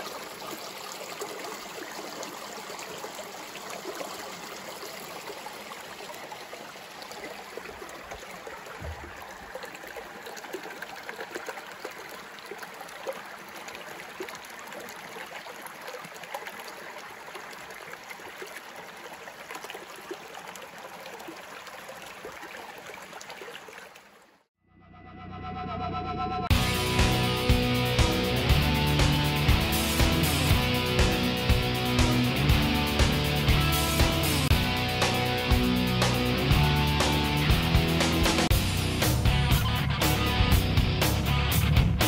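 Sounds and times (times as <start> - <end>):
brook running over stones: 0.0 - 24.5.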